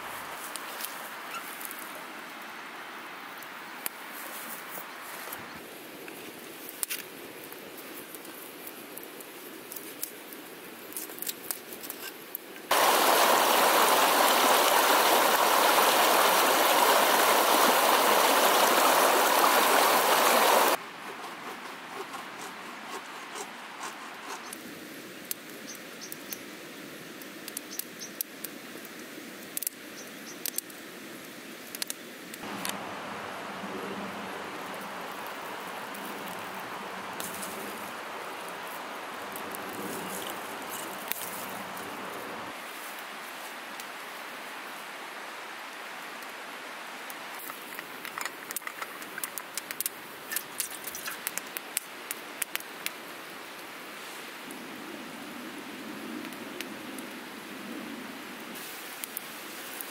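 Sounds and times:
steady background hiss: 0.0s - 20.8s, 23.6s - 59.9s
campfire crackling and popping: 6.0s - 20.8s, 31.6s - 32.9s, 34.5s - 42.2s, 47.4s - 53.1s, 58.9s - 59.9s
rushing hiss: 12.7s - 20.8s.

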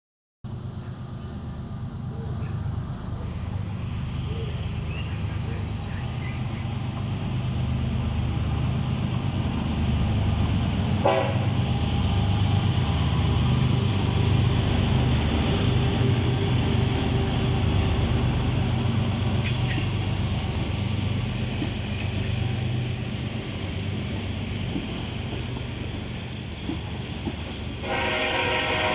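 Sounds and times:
diesel locomotive engine rumble: 0.5s - 28.9s
rolling freight cars: 0.5s - 28.9s
locomotive horn toot: 11.0s - 11.6s, 27.8s - 28.9s.

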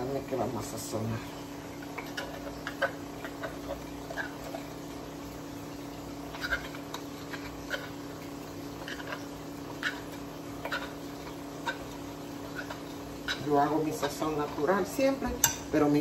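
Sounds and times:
utensils clicking on dishes: 1.9s - 4.7s, 6.3s - 8.1s, 8.7s - 15.7s.

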